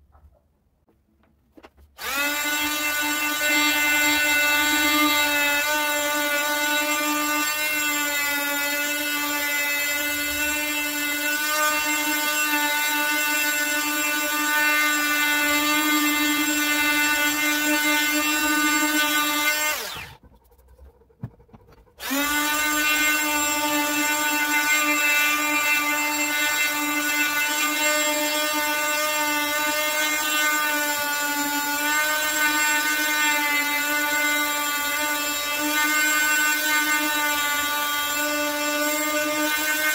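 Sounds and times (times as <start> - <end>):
multi-tool whining on wood: 1.6 - 39.9.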